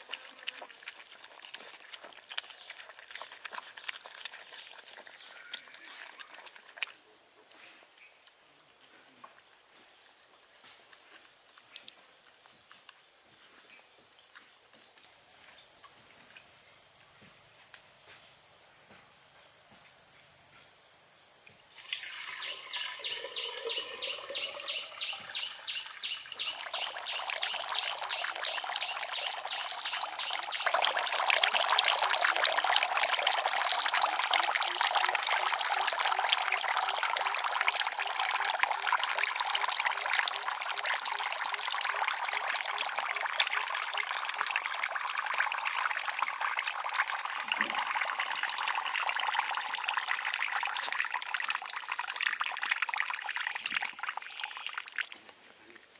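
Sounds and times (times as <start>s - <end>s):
water trickling into pond: 0.0s - 7.4s, 15.0s - 55.9s
high-pitched insect drone: 4.7s - 55.0s
fast pulsing chirp: 19.9s - 43.8s.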